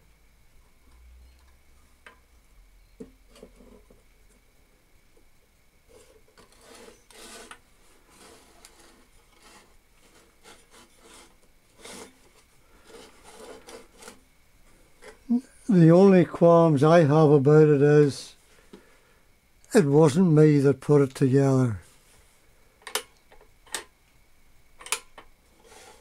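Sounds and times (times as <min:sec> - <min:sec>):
metal scraping on wooden workbench: 0:05.9 - 0:14.2, 0:25.6 - 0:26.0.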